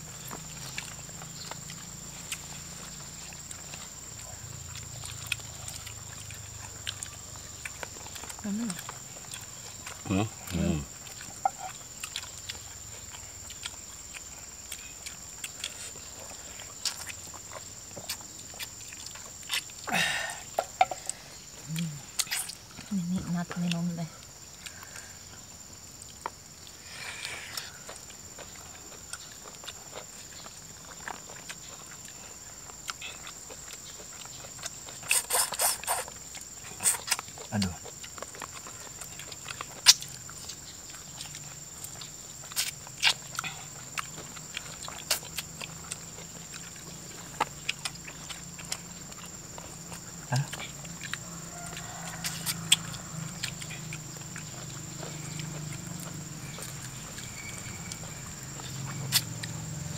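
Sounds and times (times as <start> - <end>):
chewing and mouth smacking: 0.0 - 19.9, 20.5 - 59.9
eating by hand: 0.0 - 59.9.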